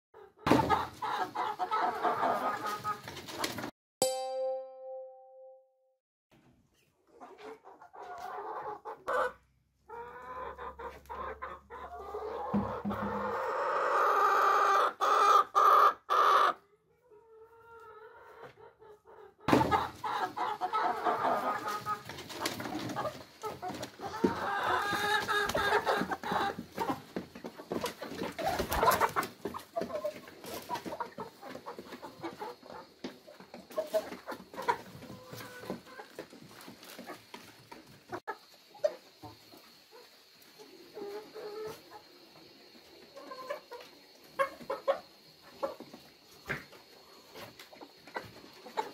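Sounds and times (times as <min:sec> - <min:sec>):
chickens clucking: 0:00.2 - 0:03.7, 0:06.7 - 0:48.9
long drawn-out chicken call: 0:08.0 - 0:22.0.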